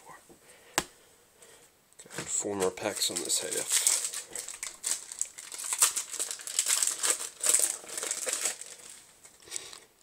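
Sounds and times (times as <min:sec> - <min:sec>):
foil wrapper crinkling: 0:02.3 - 0:09.9.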